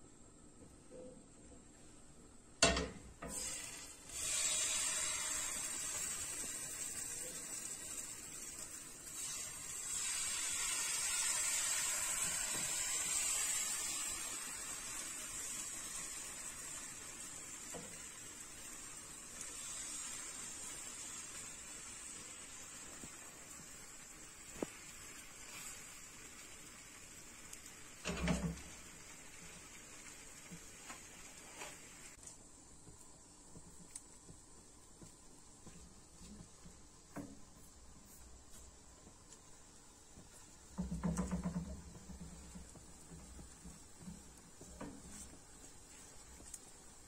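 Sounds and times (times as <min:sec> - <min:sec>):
batter sizzling in frying pan: 0:02.7 - 0:47.0.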